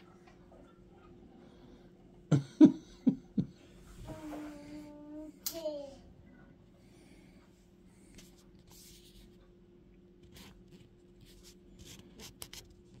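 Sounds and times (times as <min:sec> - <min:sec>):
low steady hum: 0:00.0 - 0:13.0
faint rustles and scrapes: 0:03.8 - 0:04.9, 0:07.6 - 0:09.5, 0:10.2 - 0:13.0.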